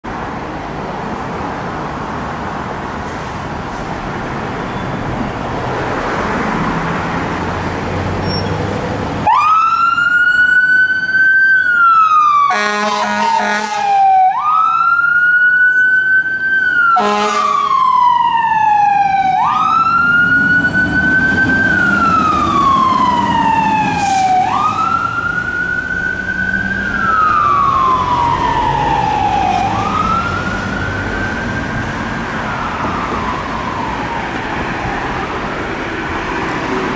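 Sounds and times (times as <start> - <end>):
fire engine diesel engine: 0.1 - 36.9
siren wailing: 9.2 - 35.4
short horn blasts: 12.5 - 13.9, 17.0 - 17.6.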